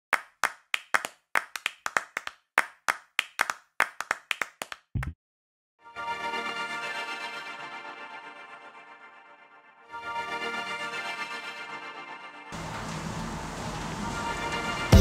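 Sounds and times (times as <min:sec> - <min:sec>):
sharp clap-like hits: 0:00.1 - 0:05.2
music with sustained chords: 0:05.8 - 0:15.0.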